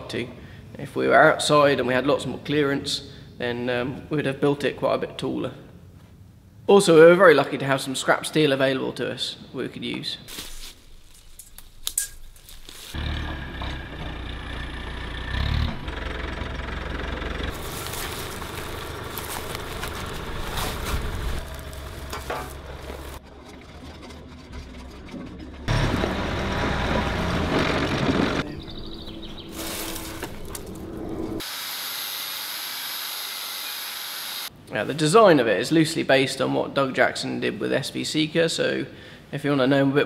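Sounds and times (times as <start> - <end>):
diesel excavator engine running: 13.0 - 31.4
metal knocks and clanks: 20.8 - 28.5.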